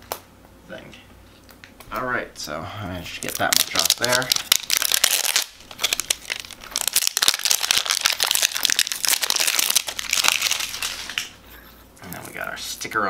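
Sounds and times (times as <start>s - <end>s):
plastic shrink-wrap crinkling: 3.1s - 11.6s.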